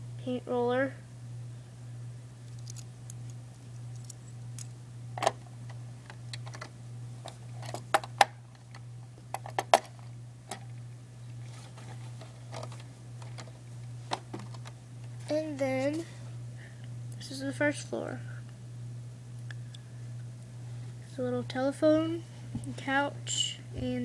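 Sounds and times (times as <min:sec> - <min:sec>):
steady low hum: 0:00.0 - 0:24.0
plastic pieces clicking: 0:02.5 - 0:04.7.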